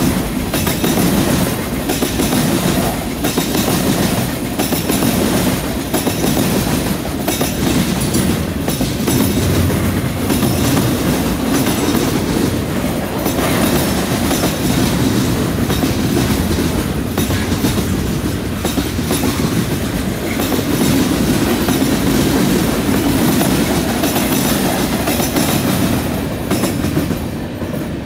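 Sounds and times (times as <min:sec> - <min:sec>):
train wheels clattering over rail joints: 0:00.0 - 0:27.9
train rumble: 0:00.0 - 0:28.0.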